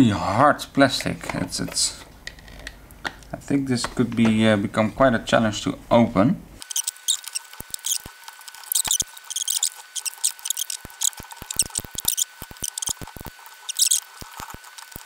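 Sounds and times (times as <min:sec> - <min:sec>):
plastic scraping: 0:06.7 - 0:15.0.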